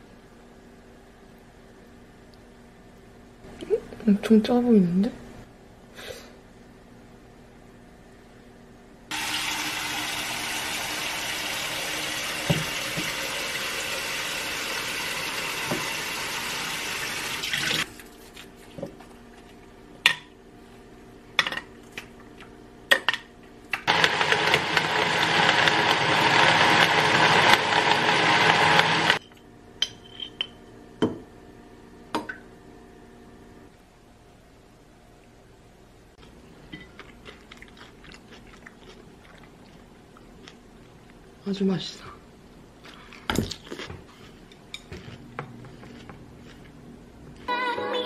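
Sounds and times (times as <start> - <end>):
small blender running: 9.1 - 17.9, 23.8 - 29.2.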